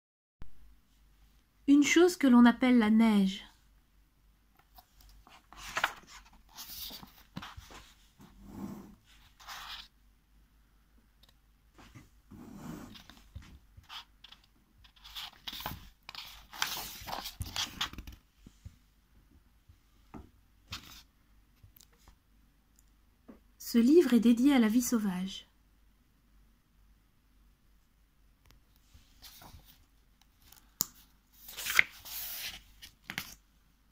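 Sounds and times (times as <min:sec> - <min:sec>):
book pages turning: 0:04.6 - 0:08.0, 0:12.9 - 0:18.2, 0:29.1 - 0:33.4.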